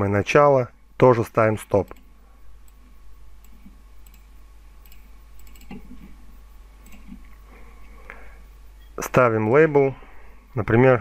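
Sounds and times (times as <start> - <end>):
low electrical hum: 0.0 - 11.0
computer mouse clicks: 1.8 - 6.2, 6.8 - 7.4.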